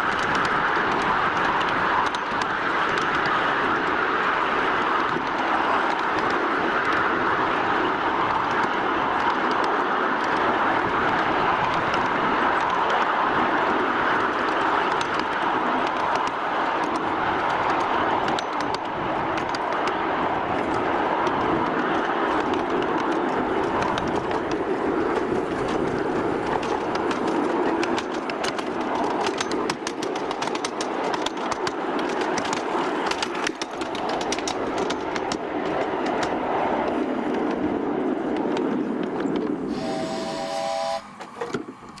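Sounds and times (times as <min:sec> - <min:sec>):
steam locomotive running: 0:00.0 - 0:42.0
wheels clicking over track: 0:00.0 - 0:42.0
brief pitched tone: 0:39.7 - 0:41.1.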